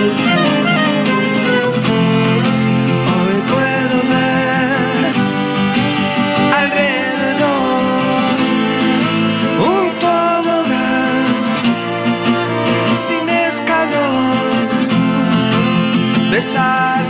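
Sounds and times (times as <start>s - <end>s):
bowed violins: 0.0s - 17.0s
strummed acoustic guitar: 0.0s - 17.0s
man singing sliding phrases: 2.9s - 5.2s, 6.4s - 8.7s, 9.5s - 11.6s, 12.7s - 15.3s, 16.2s - 17.0s.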